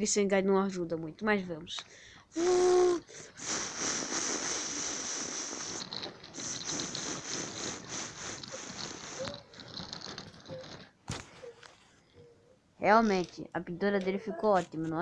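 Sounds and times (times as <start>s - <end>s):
toy train wheels rattling on track: 2.4s - 11.0s.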